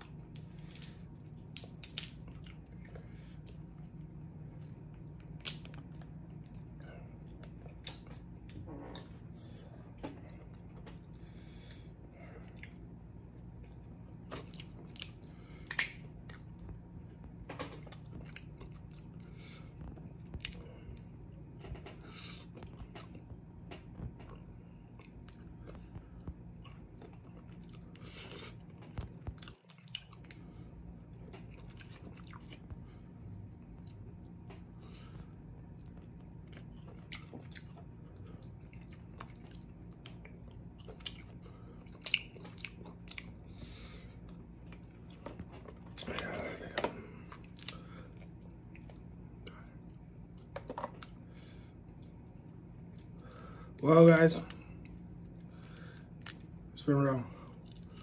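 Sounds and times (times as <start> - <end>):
person chewing and biting: 0.0 - 56.6, 57.5 - 58.0
steady low hum: 0.0 - 58.0
shells cracking and clicking: 0.3 - 2.3, 15.0 - 16.1.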